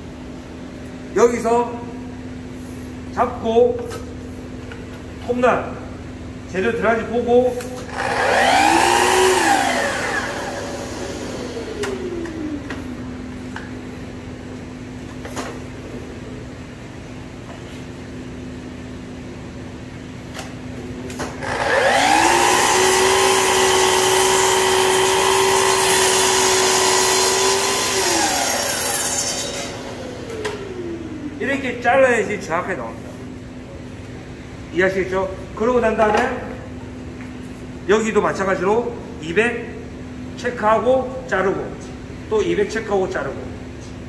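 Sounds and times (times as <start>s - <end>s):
saw crosscutting plywood: 7.9s - 12.0s, 21.4s - 30.7s
miter saw blade whine: 7.9s - 12.6s, 21.4s - 31.3s.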